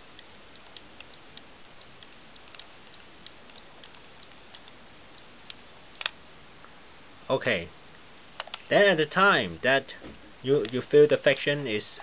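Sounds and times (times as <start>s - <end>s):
camera rewind crank ticking: 0.2s - 5.6s.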